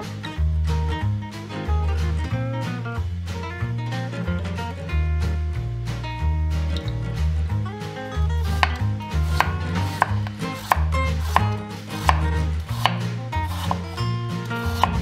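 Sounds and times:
knife slicing potatoes on wooden board: 8.4 - 15.0.

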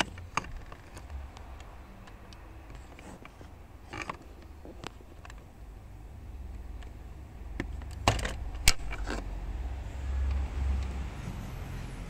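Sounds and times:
screwdriver clicks and scrapes: 7.9 - 9.3.

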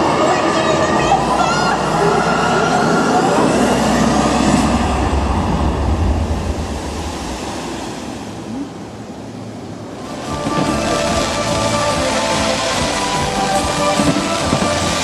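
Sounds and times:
deep rumble: 0.0 - 9.5
rushing noise: 0.0 - 15.0.

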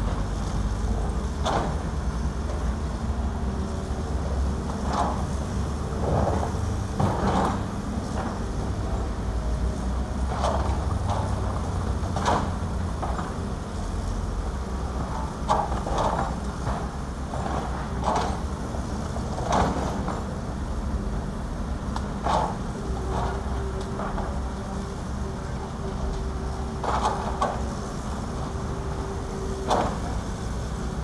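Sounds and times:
excavator diesel engines running: 0.0 - 31.0.

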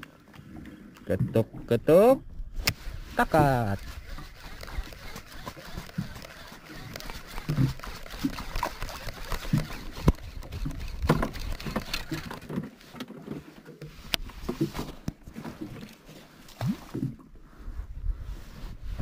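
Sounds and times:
fishing reel and rod handling: 2.5 - 16.5.

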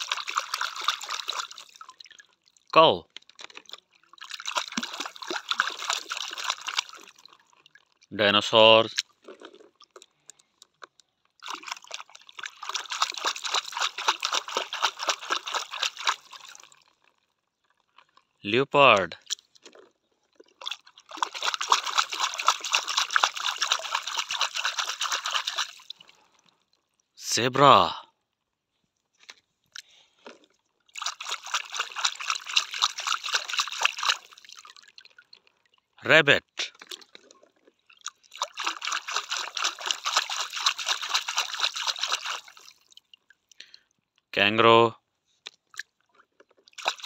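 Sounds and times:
hand splashing water in a tub: 0.0 - 8.1, 10.9 - 17.2, 18.9 - 26.7, 30.9 - 35.4, 36.6 - 43.6, 46.6 - 47.0.

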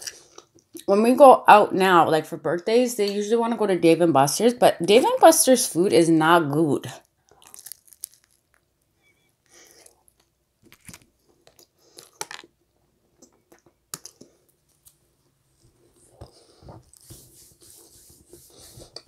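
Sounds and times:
person chewing pizza: 7.3 - 8.6, 9.5 - 12.6, 13.2 - 14.9.

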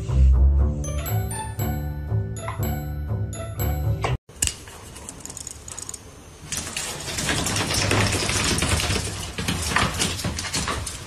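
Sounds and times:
clattering on a tile floor: 6.5 - 11.0.

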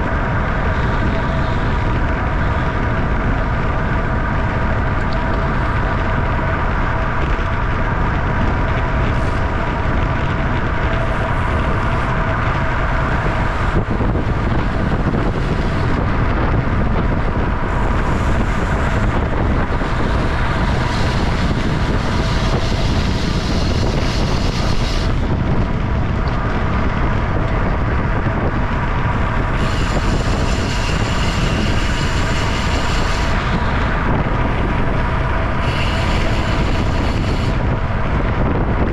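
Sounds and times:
wind rushing over microphone: 0.0 - 38.9.

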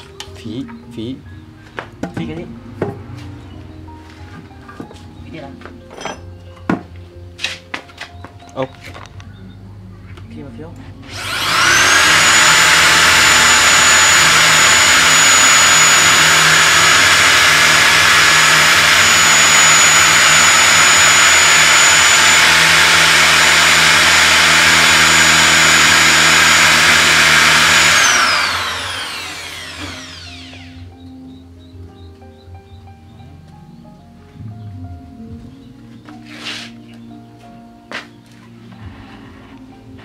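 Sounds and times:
electric drill drilling into wood: 11.0 - 30.9.

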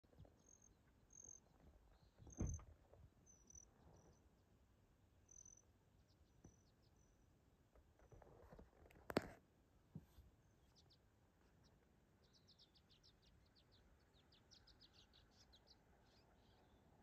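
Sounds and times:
dull low thump: 2.2 - 2.8.

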